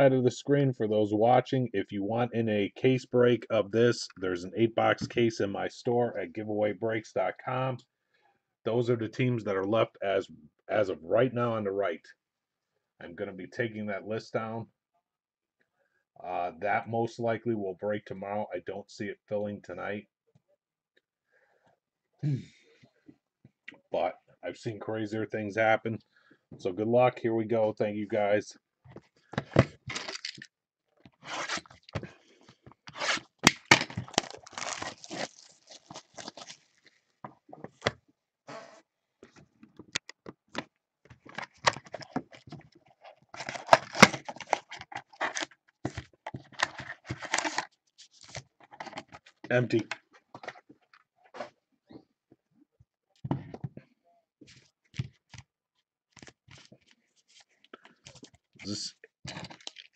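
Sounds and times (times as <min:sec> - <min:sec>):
cardboard box tearing and crinkling: 0:34.0 - 0:36.7
foil packs rustling: 0:34.0 - 0:36.9.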